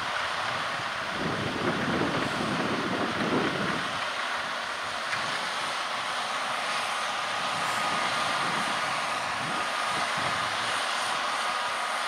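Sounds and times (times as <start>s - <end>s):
tractor engine under load: 0.0s - 12.0s
wind buffeting microphone: 0.4s - 4.0s, 7.3s - 10.8s.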